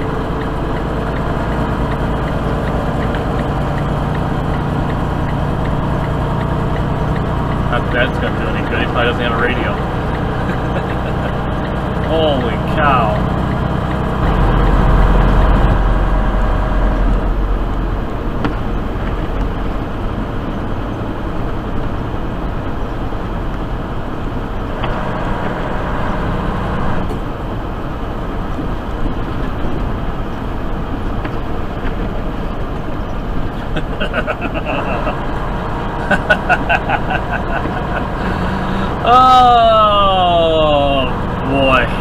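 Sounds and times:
truck engine and tyre drone: 0.0 - 42.0.

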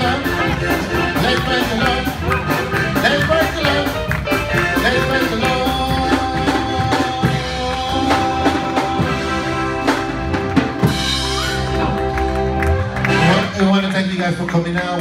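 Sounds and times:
live gospel band: 0.0 - 15.0.

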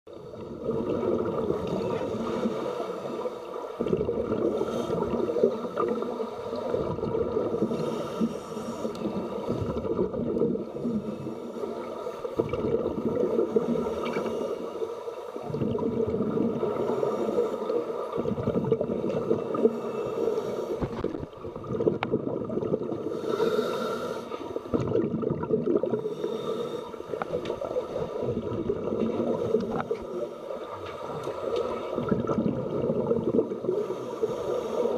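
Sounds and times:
bubbles gurgling underwater: 0.2 - 2.5, 3.8 - 7.7, 9.1 - 11.1, 12.4 - 13.8, 15.4 - 17.0, 18.1 - 19.8, 20.8 - 23.1, 24.6 - 26.2, 27.2 - 30.0, 31.8 - 33.9
divers breathing through regulators: 4.4 - 6.8, 7.5 - 9.8, 13.4 - 15.4, 16.7 - 18.1, 19.4 - 21.2, 23.0 - 24.7, 26.0 - 28.2, 33.6 - 34.9.

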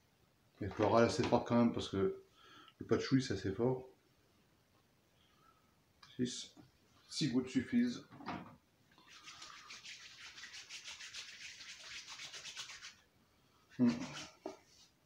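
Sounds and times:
palms rubbing together: 9.0 - 13.0, 13.7 - 15.0.

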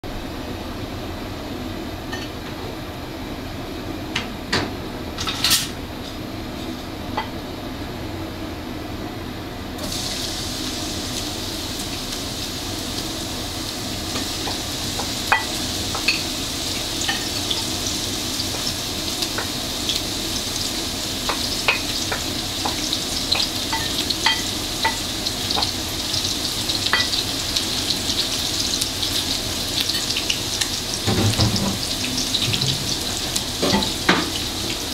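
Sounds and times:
food frying in hot oil: 9.8 - 34.9.

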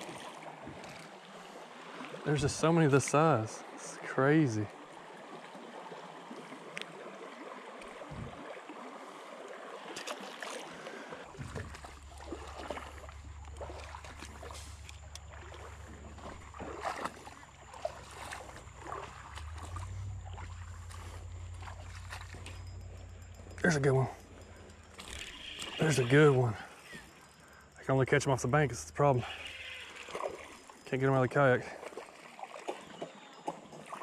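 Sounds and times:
creek water running over rocks: 0.0 - 34.0
knocks and rustles of wading: 0.0 - 34.0
low rumble on microphone: 8.1 - 8.4, 18.6 - 25.0.

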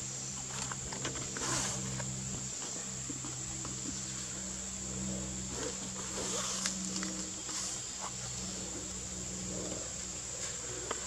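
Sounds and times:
insects chirring: 0.0 - 11.0
low steady hum: 0.0 - 11.0.

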